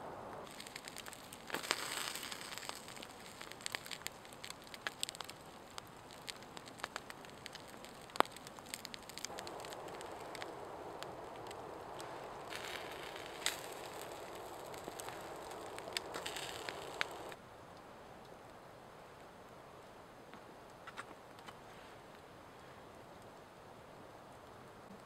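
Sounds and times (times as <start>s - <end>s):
campfire crackling: 0.0s - 22.4s
sharp fire pops: 0.2s - 17.4s.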